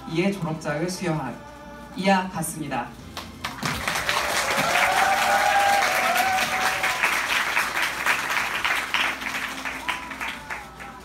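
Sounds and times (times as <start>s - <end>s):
audience applause: 3.4s - 10.9s.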